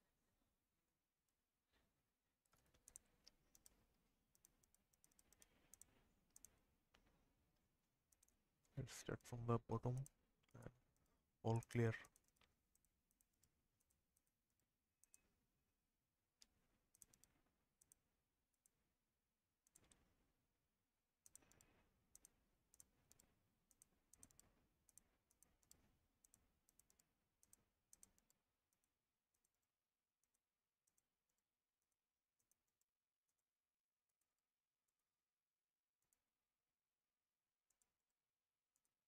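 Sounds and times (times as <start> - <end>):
computer mouse clicks: 2.4 - 7.2, 8.1 - 8.8, 9.8 - 15.3, 16.4 - 18.8, 19.6 - 20.2, 21.2 - 35.0.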